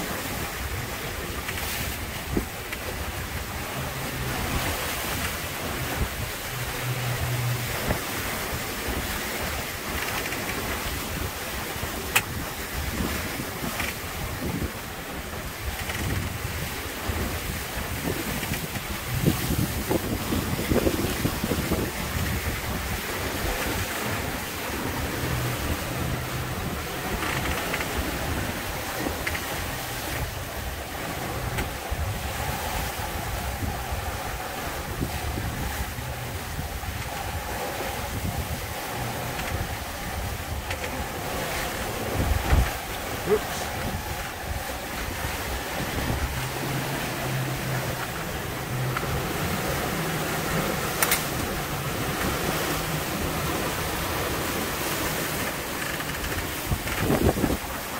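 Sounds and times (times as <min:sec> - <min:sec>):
sea splashing along hulls: 0:00.0 - 0:57.9
wind buffeting microphone: 0:00.0 - 0:57.9
creaks and knocks: 0:10.0 - 0:10.6, 0:13.7 - 0:14.0, 0:15.7 - 0:16.4, 0:18.3 - 0:18.9, 0:27.0 - 0:28.1, 0:29.1 - 0:29.6, 0:55.4 - 0:57.2.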